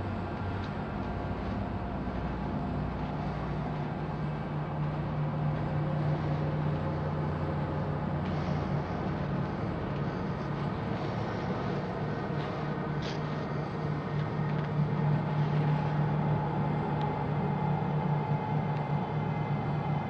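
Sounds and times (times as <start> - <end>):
low mechanical rumble: 0.0 - 20.0.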